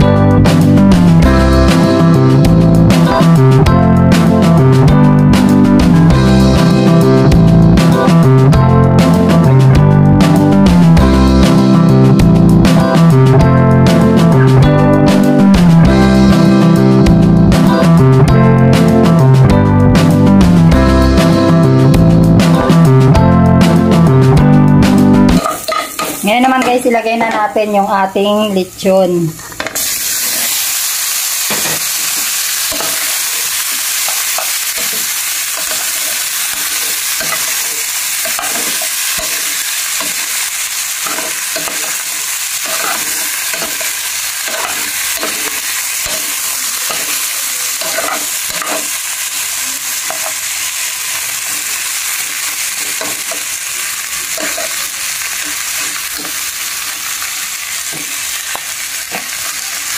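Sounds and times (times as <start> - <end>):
pork sizzling in hot oil: 0.0 - 23.0, 24.9 - 27.1, 28.8 - 59.9.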